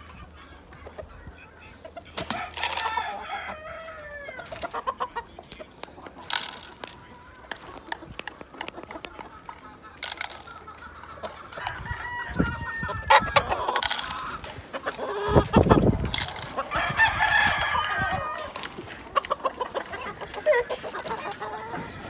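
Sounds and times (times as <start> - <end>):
roosters crowing: 0.0 - 5.4, 6.2 - 22.0.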